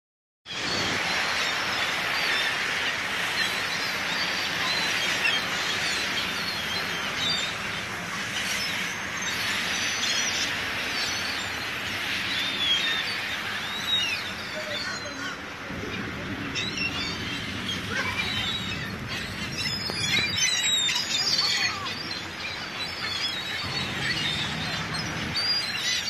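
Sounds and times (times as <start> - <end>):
flock of birds flapping wings: 14.9 - 26.0.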